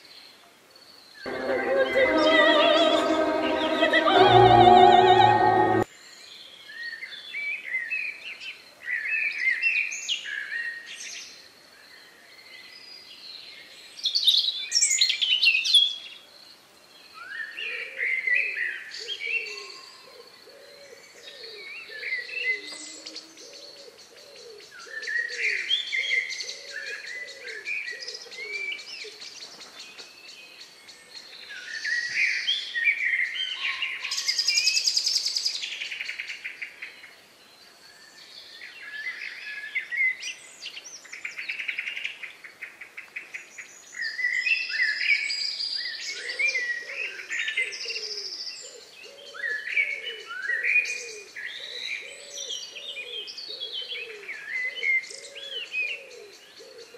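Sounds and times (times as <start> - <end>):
operatic singing: 1.3 - 5.9.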